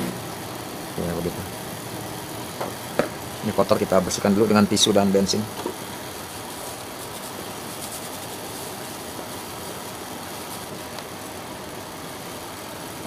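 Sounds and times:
tissue rustling on motor: 5.7s - 13.0s.

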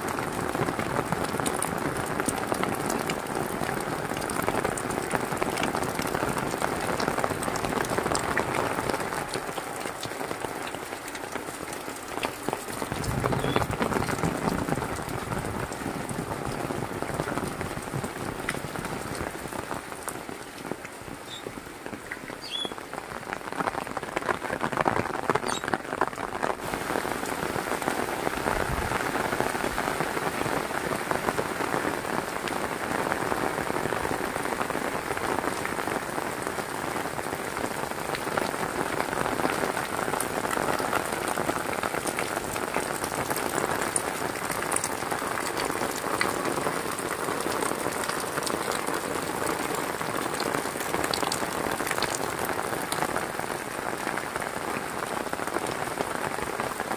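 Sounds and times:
heavy rain pouring: 0.0s - 56.9s.

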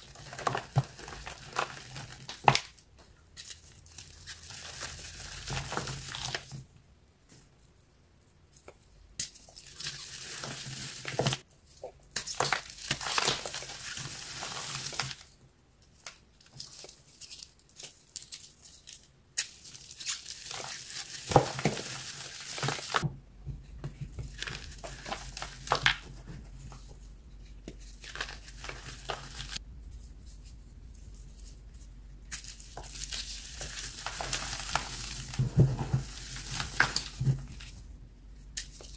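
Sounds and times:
dry blocks crunching by hand: 12.2s - 13.8s, 32.3s - 37.8s.

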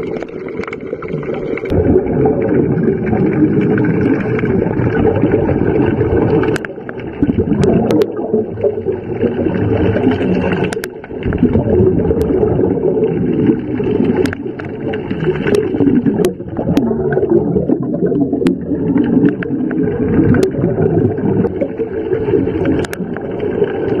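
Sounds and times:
diver exhaling bubbles underwater: 0.0s - 24.0s
sharp clicks: 10.6s - 11.1s.

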